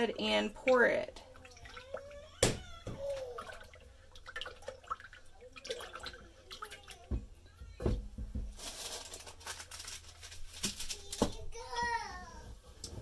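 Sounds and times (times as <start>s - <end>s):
plastic bag crinkling: 8.5s - 11.4s.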